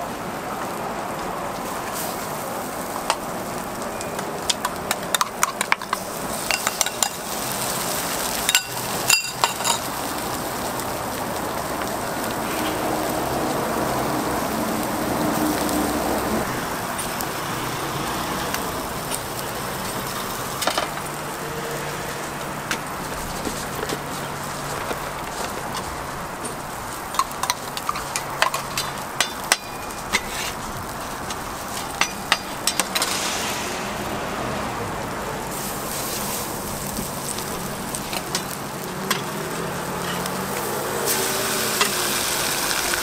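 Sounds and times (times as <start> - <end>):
food sizzling on a griddle: 0.0 - 43.0
metal utensils clicking on griddle: 3.0 - 10.6, 22.7 - 33.2, 35.5 - 43.0.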